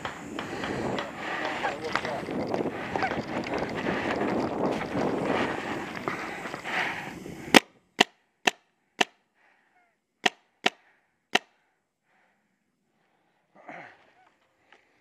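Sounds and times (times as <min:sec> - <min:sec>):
paintball marker shots: 0:07.5 - 0:09.2, 0:10.2 - 0:10.8.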